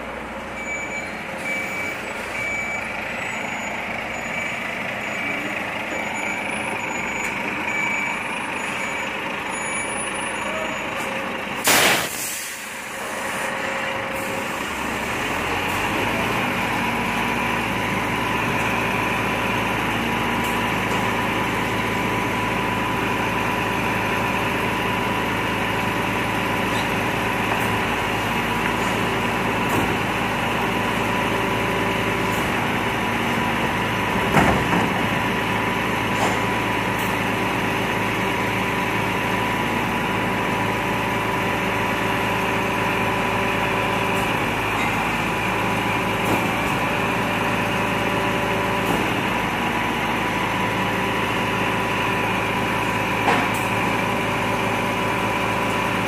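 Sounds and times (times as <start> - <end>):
diesel engine idling: 0.0 - 56.0
loud metal clank: 11.6 - 12.3.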